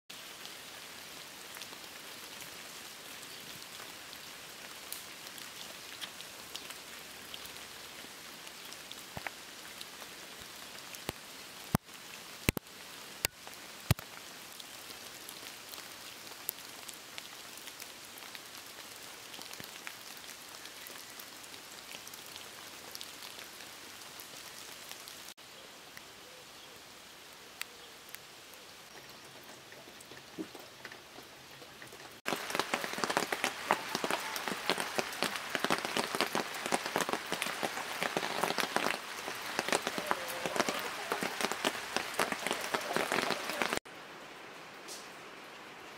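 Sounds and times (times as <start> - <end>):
steady rain falling: 0.1 - 45.9.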